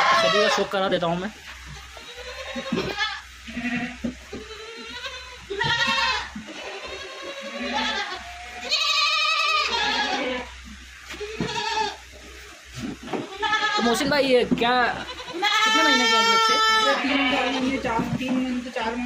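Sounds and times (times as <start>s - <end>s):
goat kids bleating: 0.0s - 0.8s, 1.6s - 12.1s, 13.2s - 14.2s, 14.8s - 19.0s.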